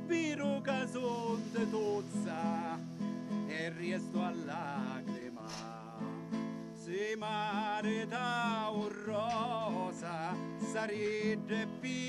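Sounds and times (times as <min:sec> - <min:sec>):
person singing with vibrato: 0:00.0 - 0:12.0.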